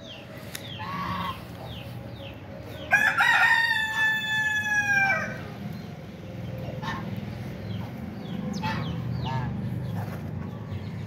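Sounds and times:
chicken clucking: 0.6s - 1.9s
rooster crowing: 2.9s - 5.5s.

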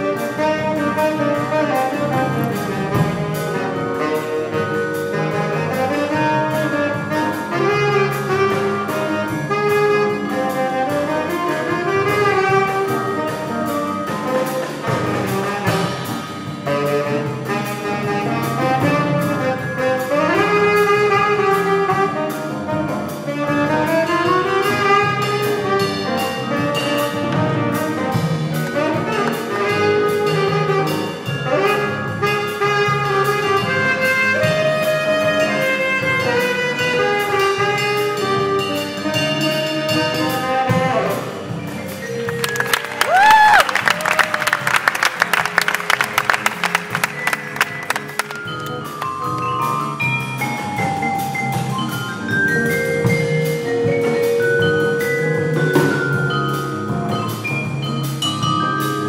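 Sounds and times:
saxophone solo: 0.0s - 49.5s
bass: 0.0s - 59.0s
ride cymbal pattern: 47.0s - 59.0s.

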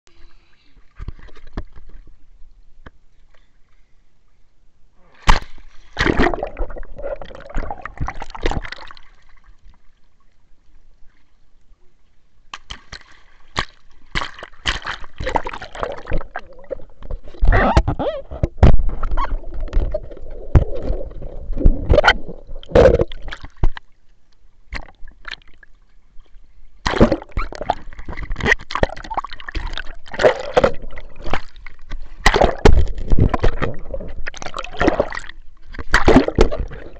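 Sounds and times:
water sloshing and splashing: 5.2s - 10.4s, 12.5s - 24.1s, 24.7s - 36.9s.

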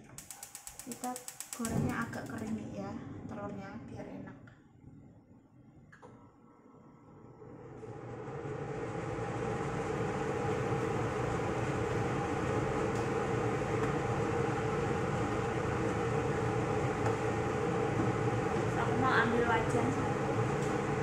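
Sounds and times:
extractor fan running: 0.0s - 3.7s, 7.0s - 21.0s.

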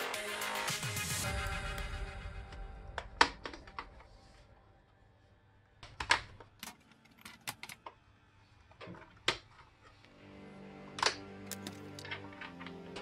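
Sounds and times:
plastic clips clicking loose: 11.0s - 13.0s.

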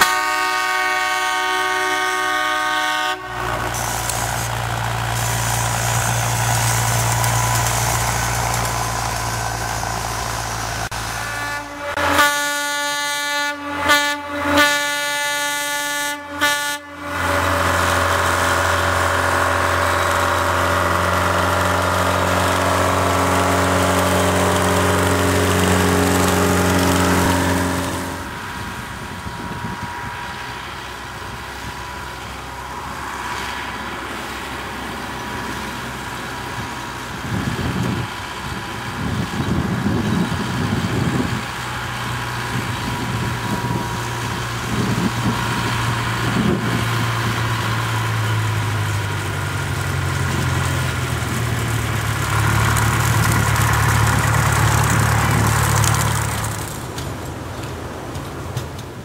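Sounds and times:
locomotive horn blasts: 0.0s - 4.6s, 10.9s - 18.8s, 23.0s - 28.4s
distant train: 0.0s - 59.0s
train running: 0.0s - 59.0s
rough rushing noise: 3.2s - 12.2s, 17.1s - 57.5s.

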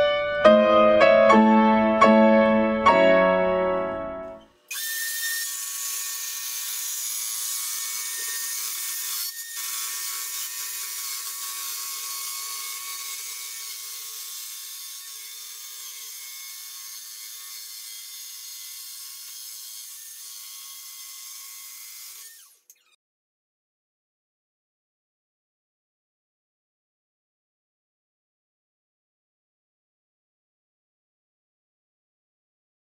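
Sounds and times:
circular saw whining: 4.4s - 23.0s
saw blade cutting plywood: 4.4s - 23.0s.

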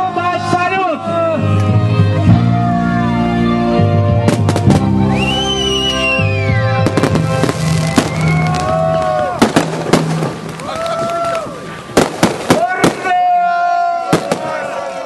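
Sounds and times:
loud music with held notes: 0.0s - 10.4s
fireworks banging: 4.3s - 5.0s, 6.8s - 13.2s, 14.1s - 14.7s
rising and falling whistle: 4.9s - 7.0s, 7.7s - 9.4s.

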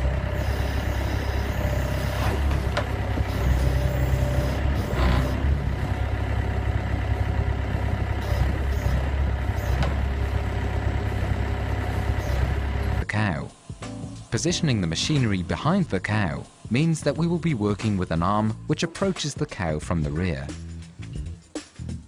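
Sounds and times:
engine droning: 0.0s - 13.1s.

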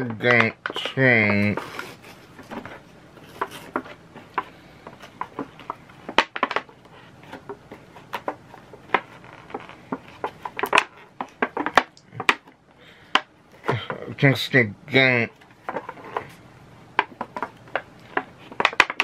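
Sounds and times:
plastic items clicking and tapping: 0.0s - 14.0s, 15.3s - 19.0s.

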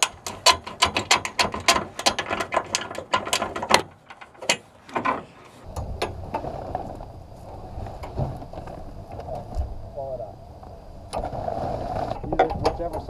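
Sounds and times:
metal poles clicking and rattling: 0.0s - 6.4s, 12.2s - 13.0s
steady low rumble: 5.6s - 13.0s.

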